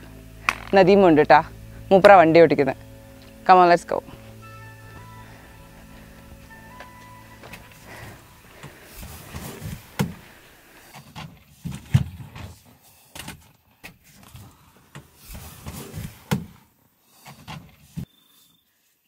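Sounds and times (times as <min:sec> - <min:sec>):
people climbing into jeep: 0:04.4 - 0:12.6, 0:13.2 - 0:16.6.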